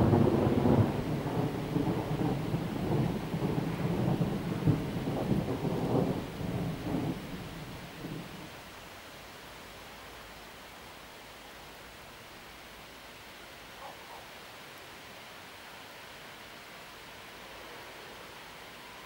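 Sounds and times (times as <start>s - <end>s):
thunder rolling: 0.0s - 8.4s
faint hiss: 0.0s - 19.0s.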